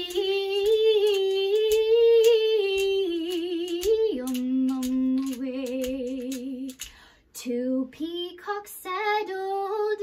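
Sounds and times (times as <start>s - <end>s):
egg shaker rhythm: 0.0s - 7.0s
woman singing wordless tune: 0.0s - 10.0s.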